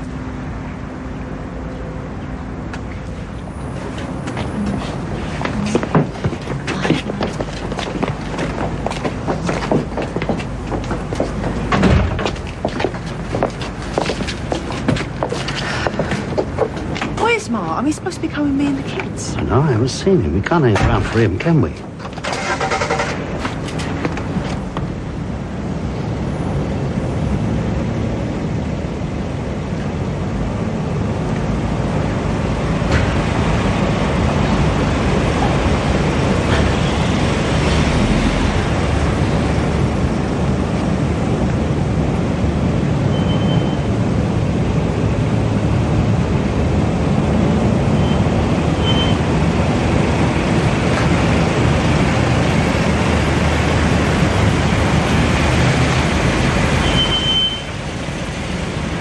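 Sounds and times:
car engine rumbling: 0.0s - 43.1s
road noise: 0.0s - 59.0s.

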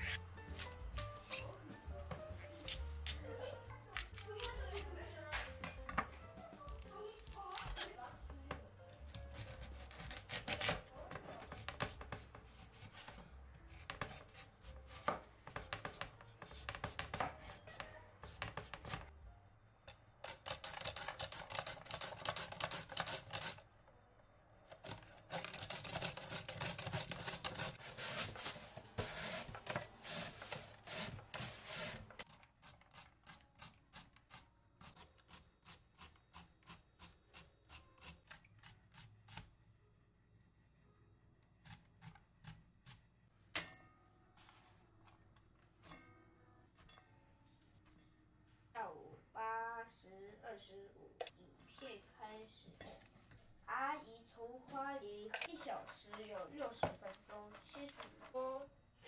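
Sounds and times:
vegetable rasping on grater: 24.8s - 33.7s, 55.5s - 58.4s.

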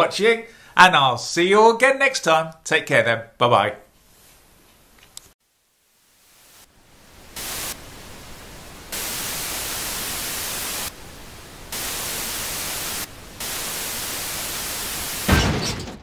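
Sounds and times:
television static hiss: 4.8s - 15.3s.

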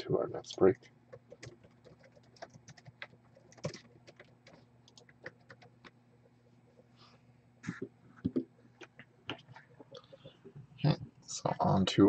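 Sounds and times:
laptop keyboard typing: 0.6s - 6.0s.

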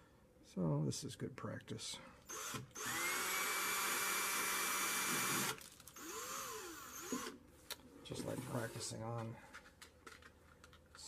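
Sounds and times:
cordless drill motor whining: 2.3s - 7.4s.

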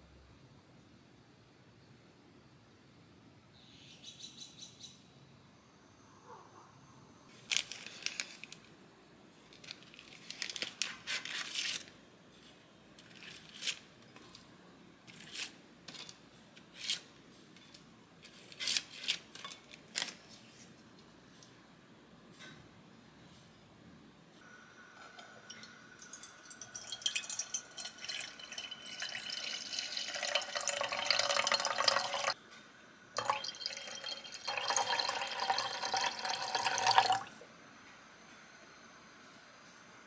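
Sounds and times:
gelatine sheets crinkling: 7.4s - 8.7s, 9.5s - 11.9s.

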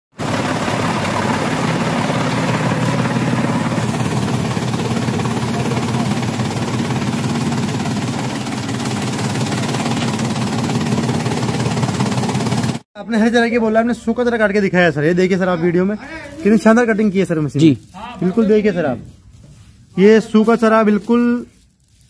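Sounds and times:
chaff cutter chopping fodder: 0.2s - 12.8s
low motor hum: 0.2s - 12.8s.

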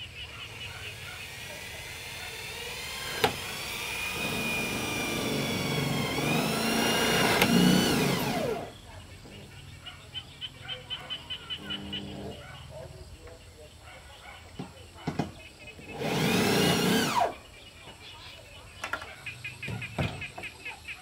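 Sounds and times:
power drill motor whine: 0.0s - 9.5s, 11.6s - 12.4s, 15.8s - 17.4s.

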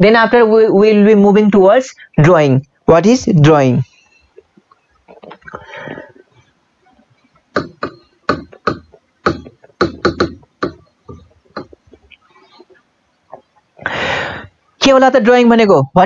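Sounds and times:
marker writing on whiteboard: 7.4s - 13.6s.

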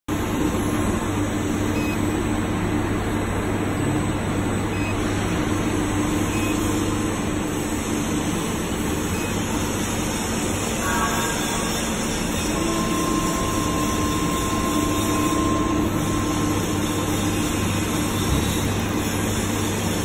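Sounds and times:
factory machinery humming: 0.1s - 20.0s
faint short beeps: 6.3s - 6.6s.

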